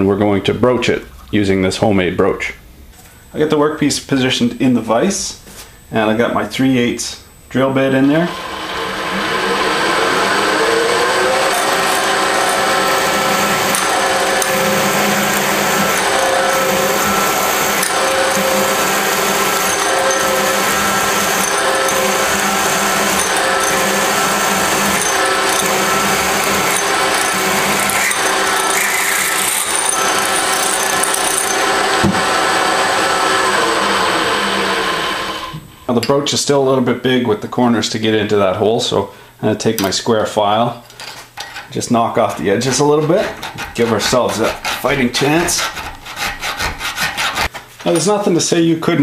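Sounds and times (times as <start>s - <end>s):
spindle motor humming: 7.6s - 35.8s
drill bit cutting steel: 8.1s - 35.6s, 42.4s - 45.8s.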